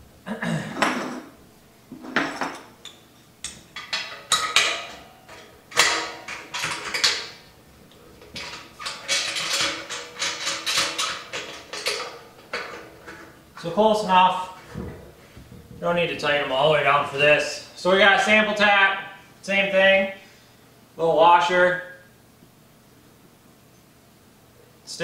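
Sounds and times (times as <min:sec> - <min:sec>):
metal clamps clanking on steel: 0:02.2 - 0:13.8.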